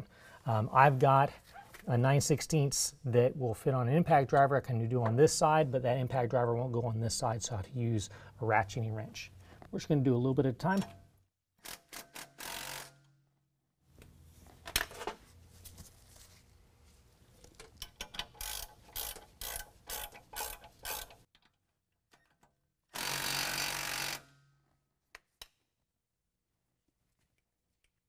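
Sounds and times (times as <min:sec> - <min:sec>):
ratcheting wrench clicking: 0:17.7 - 0:21.2.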